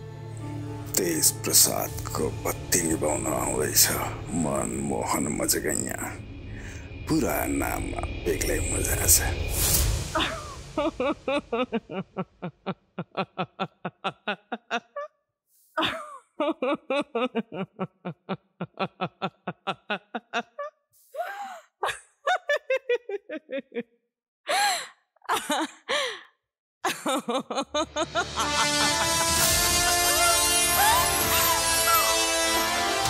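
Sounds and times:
woman laughing: 10.2s - 15.1s, 15.8s - 31.7s
gasping in-breaths: 24.5s - 25.0s, 25.9s - 26.3s.

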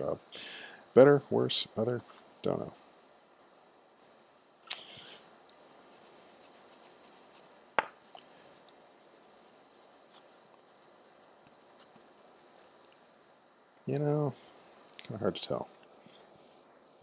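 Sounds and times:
toothbrush scrubbing circuit board: 5.5s - 7.5s, 8.2s - 12.7s.

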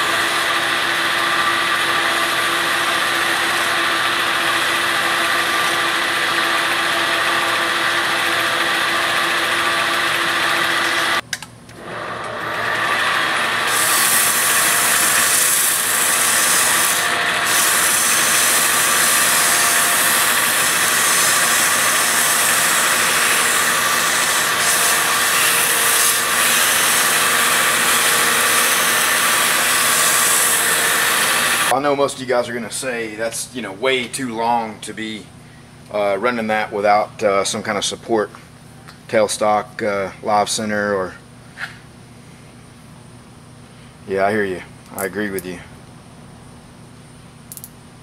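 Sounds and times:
lathe running: 0.0s - 11.2s, 11.8s - 31.8s
file drawn across spinning shaft: 12.6s - 31.8s
abrasive cloth hissing on shaft: 13.4s - 31.8s.

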